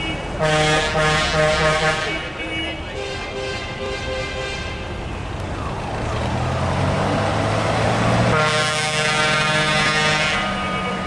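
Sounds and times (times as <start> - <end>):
fire engine horn blast: 0.0 - 5.0, 8.3 - 11.0
heavy vehicle engine passing: 0.2 - 11.0.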